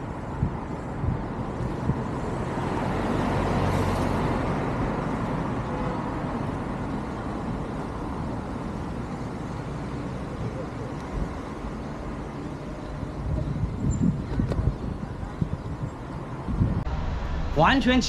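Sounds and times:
city road traffic: 0:00.0 - 0:18.0
vehicle passing close by: 0:01.5 - 0:07.2.

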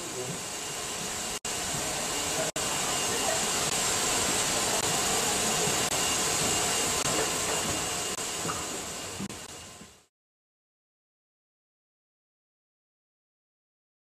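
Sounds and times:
steam locomotive venting steam: 0:00.0 - 0:10.1.

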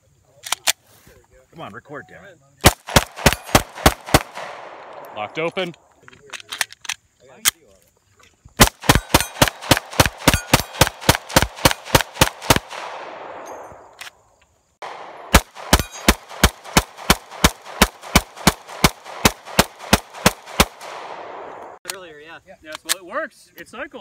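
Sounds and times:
pistol firing rapidly: 0:02.6 - 0:05.1, 0:08.6 - 0:13.4, 0:14.8 - 0:21.6.

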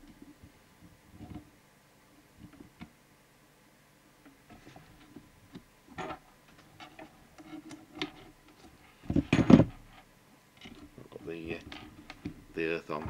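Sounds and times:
clattering rustle: 0:05.9 - 0:13.0.

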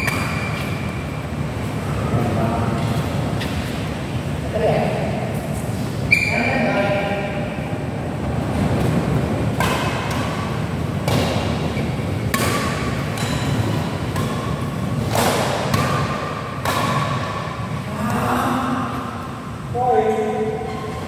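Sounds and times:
rackets striking shuttlecock: 0:00.0 - 0:00.9, 0:09.5 - 0:17.6
low rumble of echoing hall: 0:00.0 - 0:21.0.

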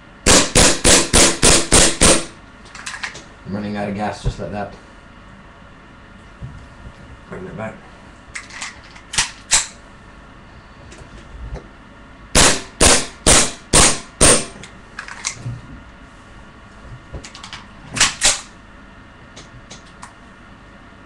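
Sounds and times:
airsoft pistol shots: 0:00.2 - 0:02.4, 0:12.4 - 0:14.6.

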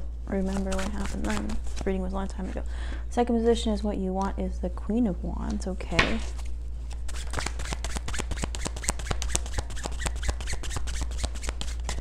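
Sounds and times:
cards being shuffled: 0:00.4 - 0:02.0, 0:06.2 - 0:12.0.

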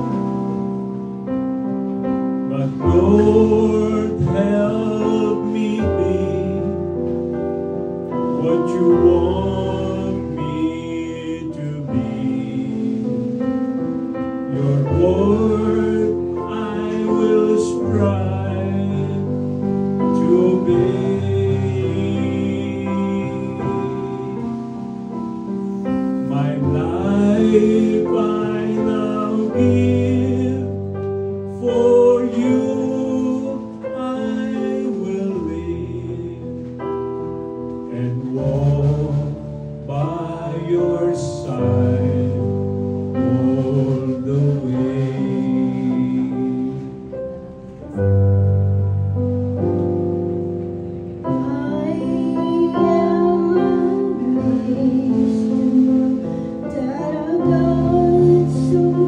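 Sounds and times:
instrumental accompaniment: 0:00.0 - 0:59.0
man singing: 0:02.5 - 0:24.8, 0:26.1 - 0:37.2, 0:37.8 - 0:47.2, 0:51.1 - 0:59.0
woman singing: 0:51.4 - 0:59.0.

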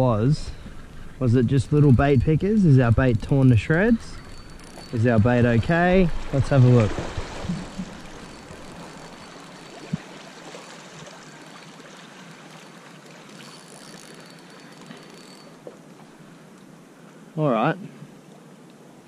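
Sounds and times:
river water flowing: 0:03.6 - 0:17.3.

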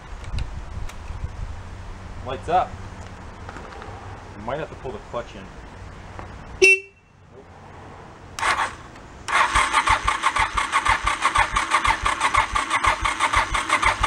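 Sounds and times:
starter cranking engine: 0:08.4 - 0:14.0.

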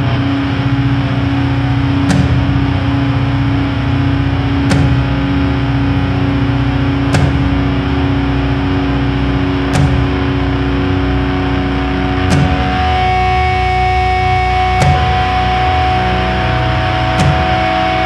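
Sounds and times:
distorted guitar chord droning: 0:00.0 - 0:18.0
drum and cymbal hits: 0:01.9 - 0:03.4, 0:04.2 - 0:06.0, 0:07.0 - 0:08.4, 0:09.7 - 0:10.6, 0:12.2 - 0:13.7, 0:14.6 - 0:16.3, 0:17.0 - 0:18.0.

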